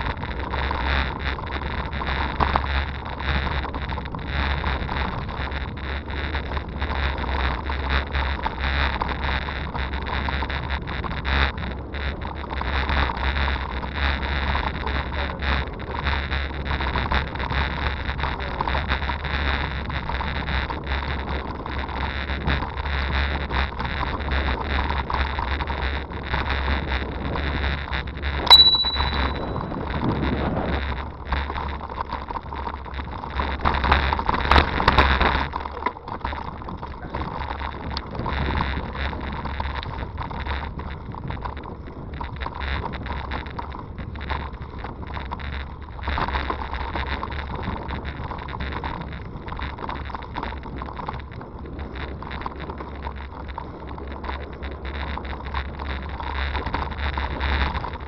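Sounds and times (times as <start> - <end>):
bicycle tyres on gravel: 0.0 - 28.6, 29.2 - 58.0
bike rattling over bumps: 0.0 - 58.0
high ring with click: 28.5 - 29.9.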